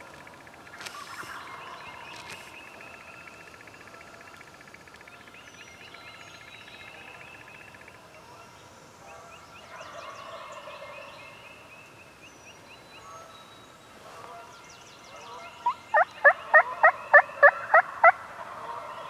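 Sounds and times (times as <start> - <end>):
small birds chirping: 0.0 - 8.0
turkey gobbling: 15.2 - 19.0.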